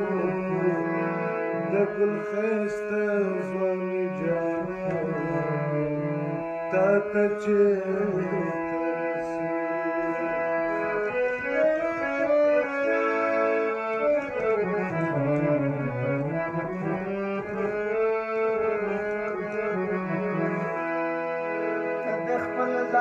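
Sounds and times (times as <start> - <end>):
electronic keyboard melody: 0.0 - 23.0.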